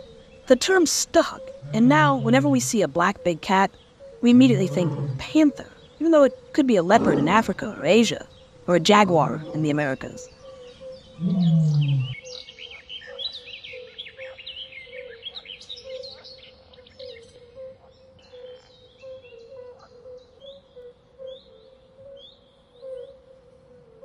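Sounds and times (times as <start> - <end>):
small birds chirping: 0.0 - 23.0
pulsing low drone: 1.5 - 2.8.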